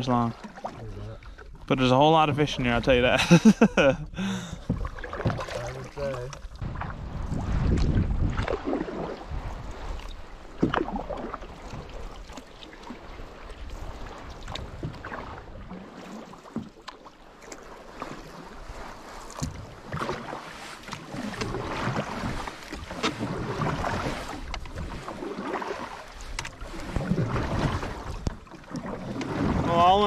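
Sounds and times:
water splashes and drips: 0.0 - 1.9, 4.6 - 30.0
paddles dipping through water: 0.0 - 30.0
wind rumble on microphone: 4.1 - 12.3.

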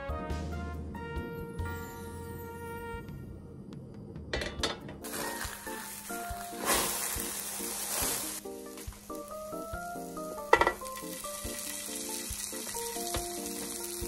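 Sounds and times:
bread sizzling in oiled pan: 5.0 - 14.0.

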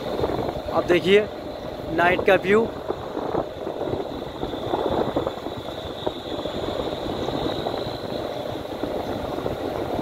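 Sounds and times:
tyres on road: 0.0 - 10.0.

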